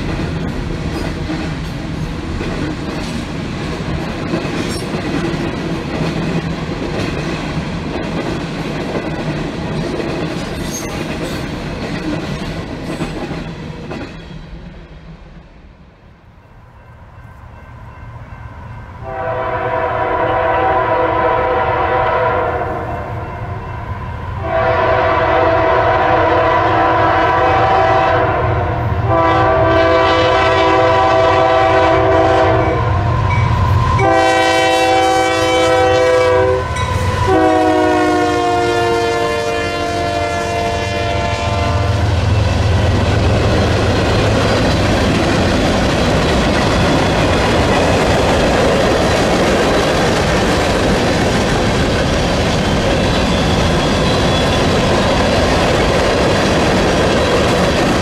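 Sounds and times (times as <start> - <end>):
locomotive horn blasts: 19.0 - 23.1, 24.4 - 33.0, 34.0 - 42.1
locomotive rumble: 41.0 - 58.0
freight cars clattering on rails: 42.4 - 58.0.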